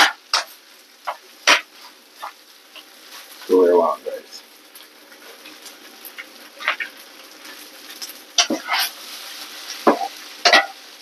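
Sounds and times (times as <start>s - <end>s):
food sizzling in a pan: 0.0s - 11.0s
utensil scraping a pan: 6.6s - 10.8s.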